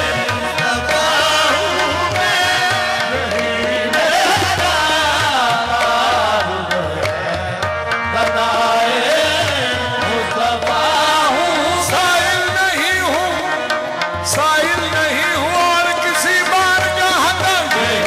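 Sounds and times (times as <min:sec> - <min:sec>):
harmoniums: 0:00.0 - 0:18.0
tabla rhythm: 0:00.0 - 0:18.0.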